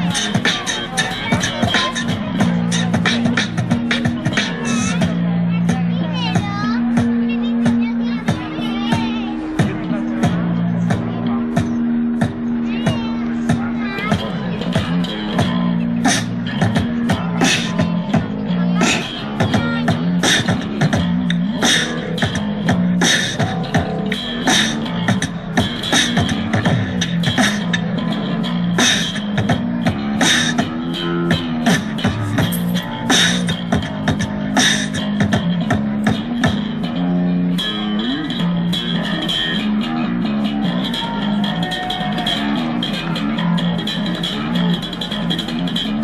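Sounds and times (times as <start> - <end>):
amplified beatboxing: 0.0 - 46.0.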